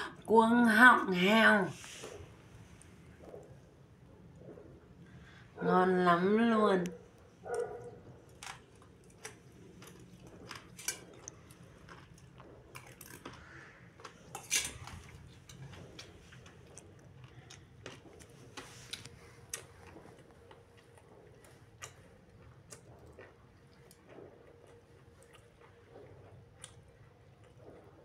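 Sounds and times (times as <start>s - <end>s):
close-up chewing: 6.8s - 28.0s.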